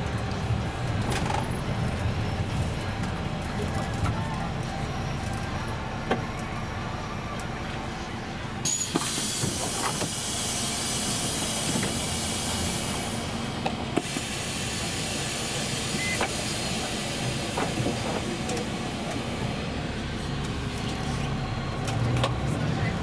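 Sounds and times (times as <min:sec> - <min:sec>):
bus engine idling: 0:00.0 - 0:23.0
compressed air hissing: 0:14.0 - 0:18.0.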